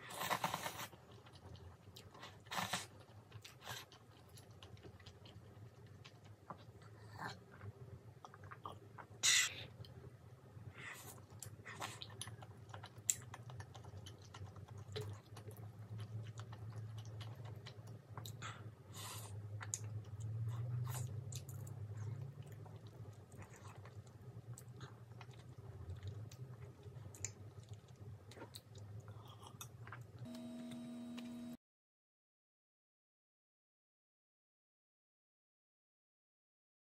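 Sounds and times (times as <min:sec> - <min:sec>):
chewing rice cakes: 0:00.0 - 0:10.1, 0:10.7 - 0:30.3
faint low hum: 0:00.0 - 0:31.6
hum with several pitches: 0:30.3 - 0:31.6.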